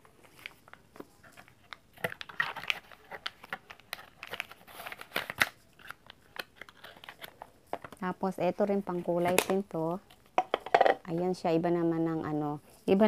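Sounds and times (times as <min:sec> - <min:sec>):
plastic wrapping crinkling: 0:00.0 - 0:10.4.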